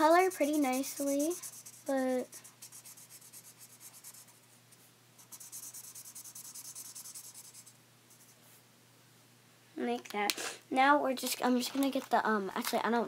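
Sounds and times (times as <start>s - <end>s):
marker scratching on paper: 0.0s - 4.5s, 5.2s - 8.4s.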